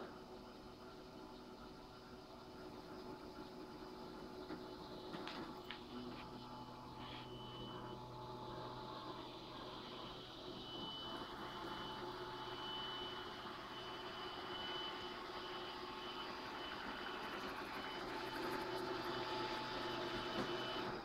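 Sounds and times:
robot vacuum cleaner whirring: 4.4 - 21.0
thin high whine: 5.2 - 18.4.

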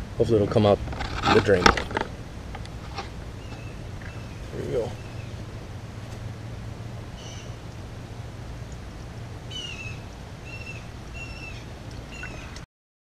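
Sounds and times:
steady low hum: 0.0 - 12.7
bird calling high notes: 7.2 - 7.6, 9.5 - 12.6.

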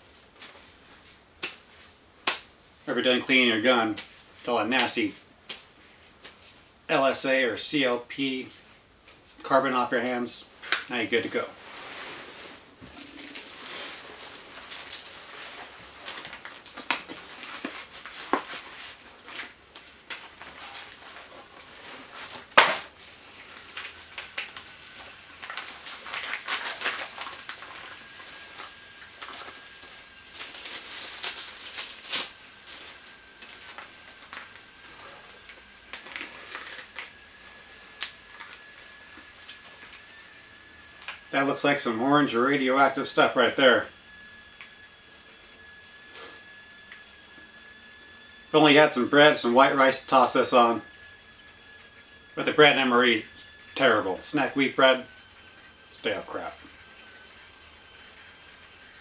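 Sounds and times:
sharp snap: 2.2 - 2.5
plastic pouches crinkling: 12.9 - 37.1.

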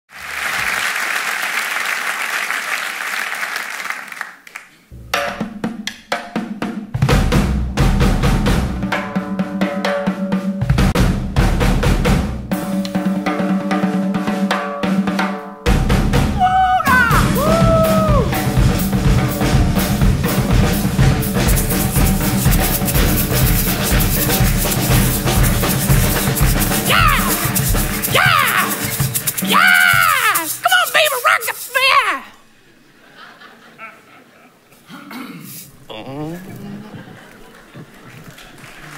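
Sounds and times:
audience applauding: 0.1 - 4.9, 21.5 - 32.2, 36.6 - 38.9
bass drum and snare hits: 7.0 - 8.9, 10.7 - 12.5, 15.7 - 29.4
fast high hi-hat rhythm: 18.3 - 31.9.

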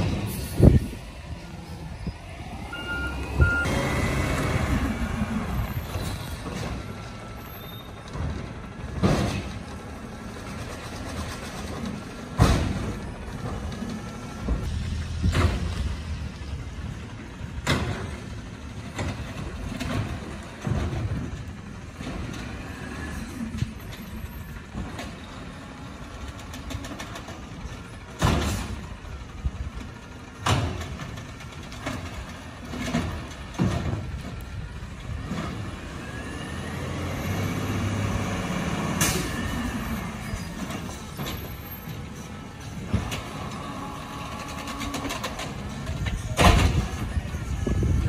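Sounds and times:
truck arm lifting carts: 0.0 - 48.0
carts banging on hopper: 7.9 - 16.3, 16.9 - 22.7, 24.6 - 48.0.

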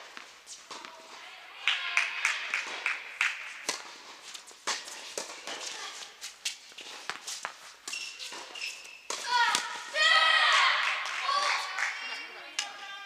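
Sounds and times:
tennis balls struck and bouncing: 0.0 - 13.0
short high squeak: 7.9 - 9.1.

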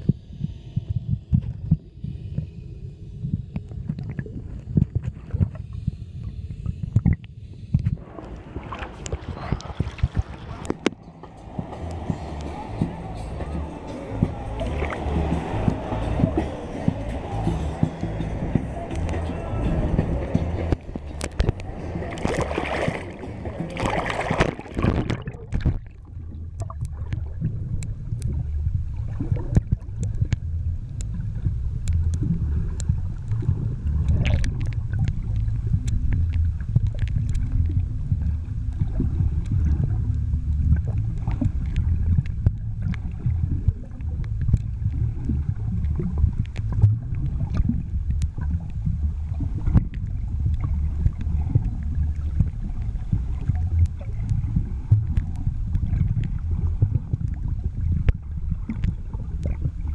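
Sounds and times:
motorboat engine rumble: 0.0 - 59.9
wind buffeting microphone: 7.9 - 59.9
rush of high noise: 8.0 - 25.0
water washing: 8.0 - 30.4.

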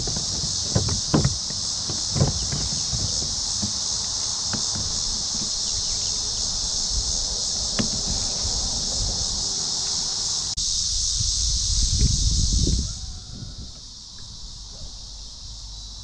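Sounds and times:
knocks and thumps from boat: 0.0 - 6.1, 7.7 - 9.2
insects droning: 0.0 - 16.0.

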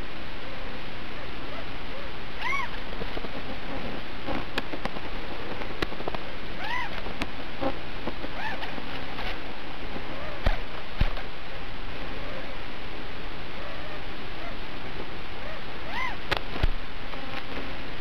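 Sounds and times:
static hiss: 0.0 - 18.0.

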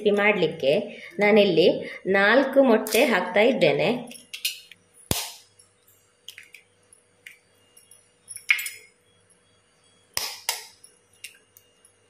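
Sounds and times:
eggs cracking on metal spoon: 6.2 - 7.4.

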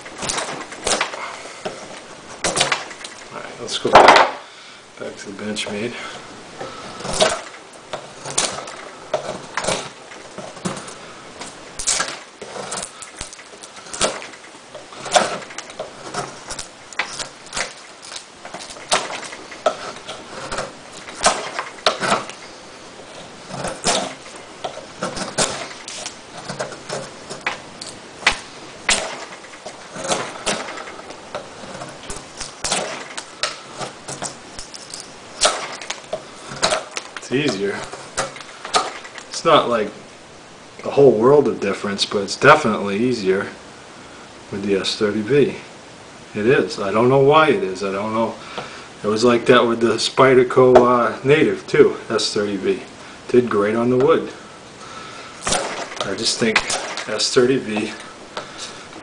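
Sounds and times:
wood chip cracking loose: 0.0 - 4.5, 6.6 - 39.8, 54.9 - 59.0
knife carving wood: 6.6 - 39.4.

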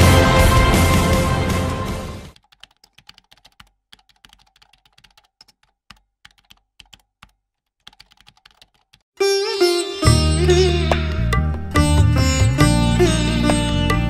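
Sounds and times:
theme music: 0.0 - 2.4.

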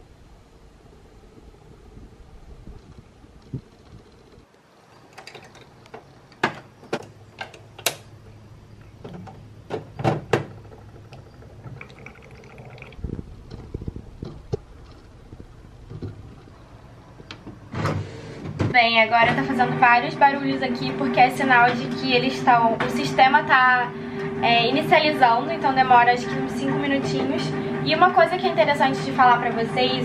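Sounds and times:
faint low hum: 0.0 - 17.8.

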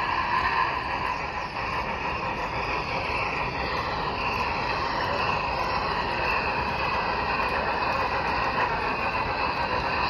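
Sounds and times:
model train motor whirring: 0.0 - 10.0.

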